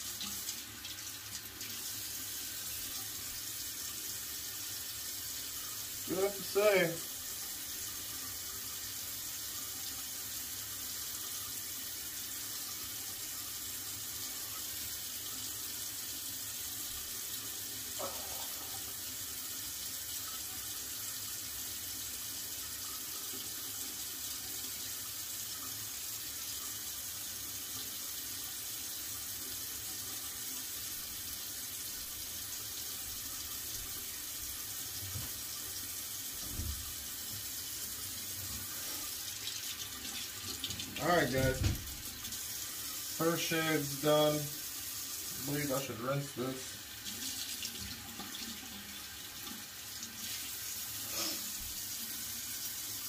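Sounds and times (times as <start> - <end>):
tap running into a sink: 35.0 - 35.6, 36.4 - 37.6, 39.4 - 42.4.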